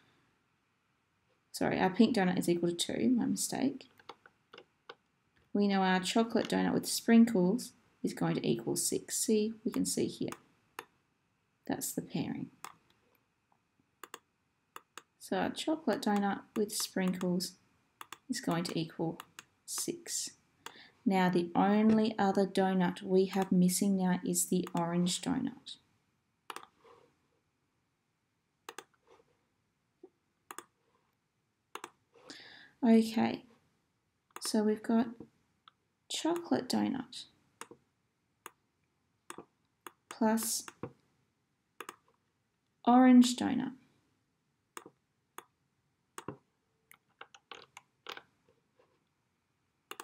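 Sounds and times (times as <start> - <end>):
computer mouse clicks: 4.0 - 5.0, 14.0 - 15.1, 15.9 - 17.3, 18.0 - 19.9, 23.3 - 23.5, 26.5 - 26.8, 28.7 - 29.0, 30.5 - 30.7, 31.7 - 32.0, 41.8 - 42.0.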